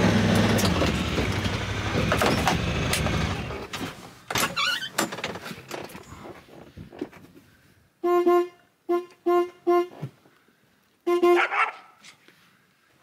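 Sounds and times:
engine running: 0:00.0 - 0:04.2.

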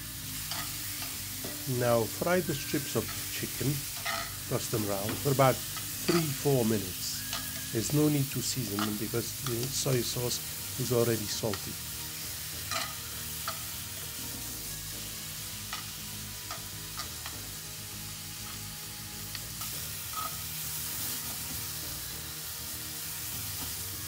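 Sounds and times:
chicken sizzling in oil: 0:00.0 - 0:24.0
metal tongs clicking: 0:00.4 - 0:01.6, 0:03.9 - 0:04.4, 0:05.1 - 0:06.4, 0:07.2 - 0:07.8, 0:12.7 - 0:13.7.

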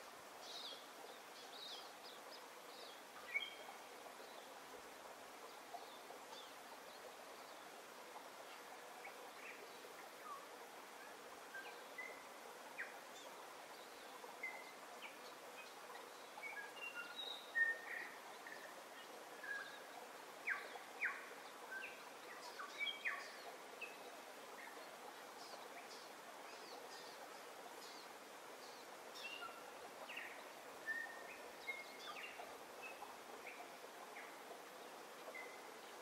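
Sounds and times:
steady hiss: 0:00.0 - 0:36.0
small birds chirping: 0:08.5 - 0:36.0.

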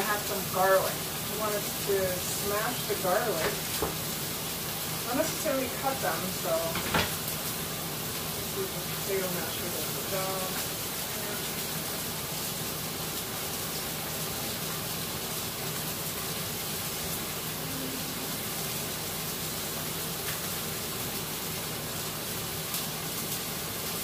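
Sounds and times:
steak sizzling in a pan: 0:00.0 - 0:15.4.

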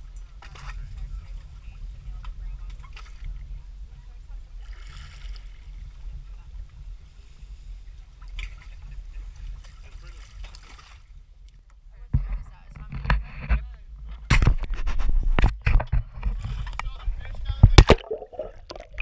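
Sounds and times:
low rumble of moving water: 0:00.0 - 0:19.0
water lapping against boat hull: 0:00.1 - 0:06.4, 0:08.2 - 0:11.1, 0:14.3 - 0:19.0
water splashes: 0:09.6 - 0:11.1, 0:17.2 - 0:19.0.

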